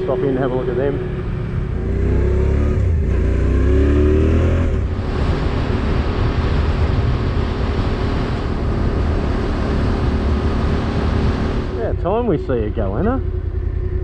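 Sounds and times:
motorcycle engine accelerating: 0.0s - 14.0s
wind noise on microphone: 4.1s - 11.9s.

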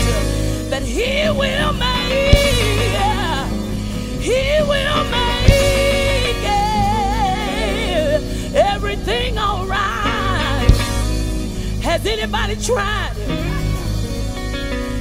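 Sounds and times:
women singing gospel: 0.0s - 13.8s
keyboard and band accompaniment: 0.0s - 15.0s
steady bass line: 0.0s - 15.0s
sharp hits: 2.1s - 8.2s, 10.5s - 11.7s.

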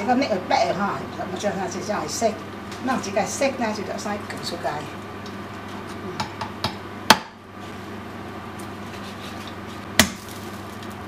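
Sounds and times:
knife chopping on wooden board: 6.2s - 7.4s, 10.0s - 10.3s.

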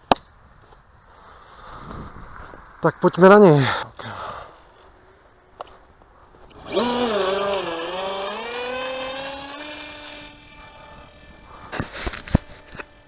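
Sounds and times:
model plane motor whine: 6.5s - 13.0s.

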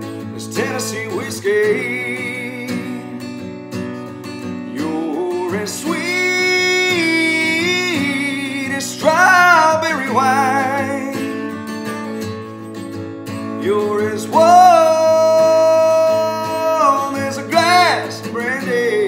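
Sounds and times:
acoustic guitar strumming: 0.0s - 19.0s
man singing wordless vocal runs: 0.4s - 3.2s, 4.7s - 11.6s, 13.5s - 19.0s.

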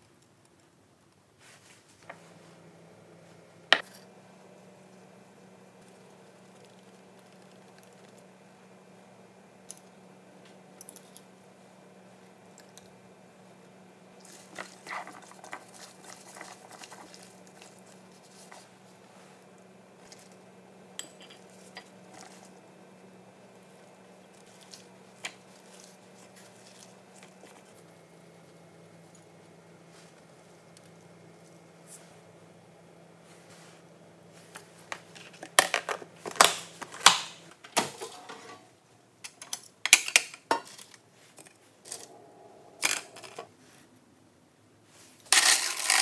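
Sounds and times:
wet squishing and rustling: 14.2s - 19.2s
faint low hum: 41.1s - 46.0s.

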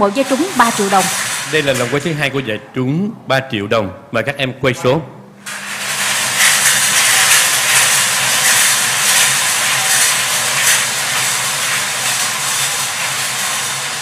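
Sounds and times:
lottery balls rattling in drums: 0.0s - 2.5s, 5.5s - 14.0s.

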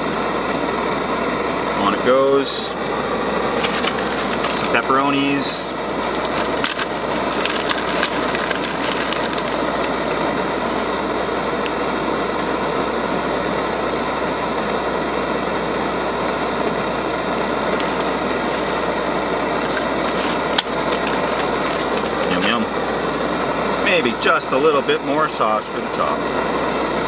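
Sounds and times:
camp stove burning with roar: 0.0s - 27.0s
plastic packet crinkling: 3.5s - 4.9s, 6.1s - 10.0s, 19.6s - 22.6s.

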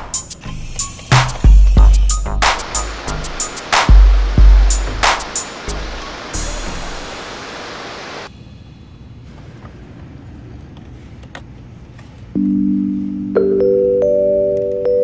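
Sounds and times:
steady hiss: 0.0s - 8.5s
marimba-like music notes: 12.4s - 15.0s.

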